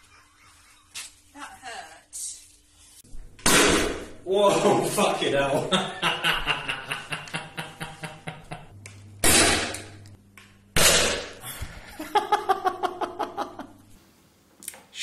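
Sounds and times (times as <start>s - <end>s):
man laughing: 4.5s - 8.7s, 11.4s - 13.8s.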